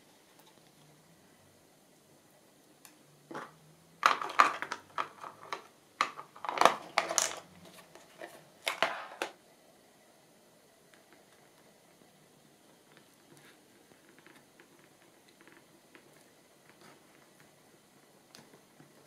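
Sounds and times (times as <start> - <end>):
craft supplies clattering and rustling: 3.3 - 9.4.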